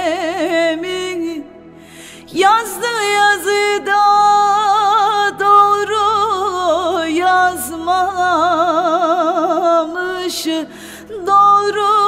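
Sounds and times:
woman singing folk song: 0:00.0 - 0:12.0.

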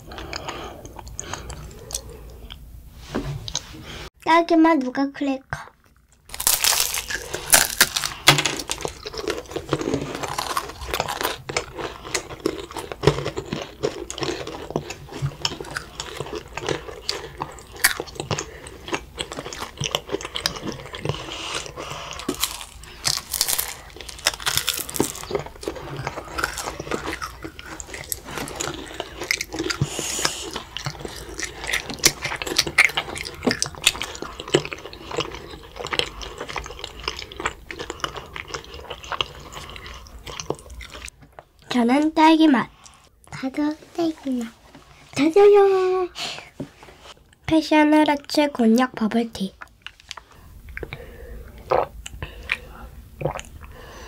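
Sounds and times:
children crunching crackers: 0:05.6 - 0:41.4.

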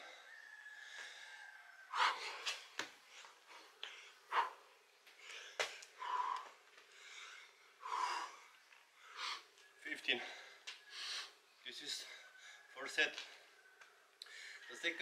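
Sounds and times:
man panting: 0:00.9 - 0:11.4.

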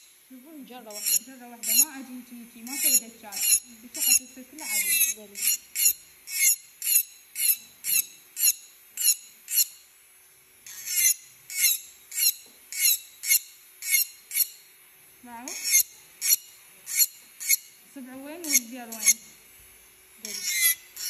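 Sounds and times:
faint motor tone: 0:00.0 - 0:21.0
handpiece bur grinding acrylic: 0:02.6 - 0:09.8, 0:15.5 - 0:17.8, 0:20.2 - 0:21.0.

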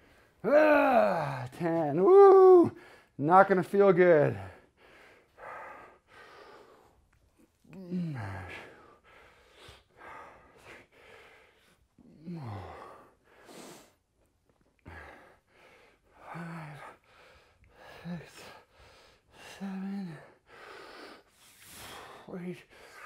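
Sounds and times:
man groaning with effort: 0:00.4 - 0:02.8, 0:07.7 - 0:08.8, 0:12.2 - 0:12.8
man grunting: 0:00.4 - 0:02.8, 0:07.7 - 0:08.7
man breathing hard: 0:02.7 - 0:03.2, 0:04.4 - 0:14.0, 0:14.8 - 0:23.0.

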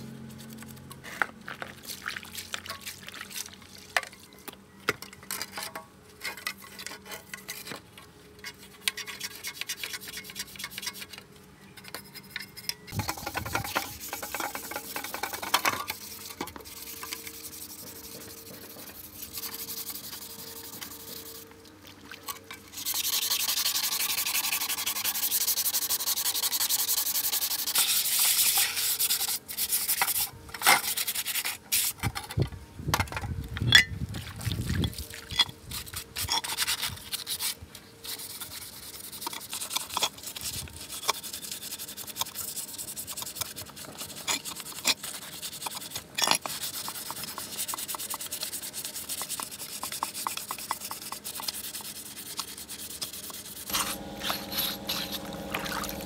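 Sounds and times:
sanding scraping metal part: 0:08.9 - 0:11.2, 0:11.8 - 0:21.4, 0:22.8 - 0:32.0, 0:35.7 - 0:56.0.

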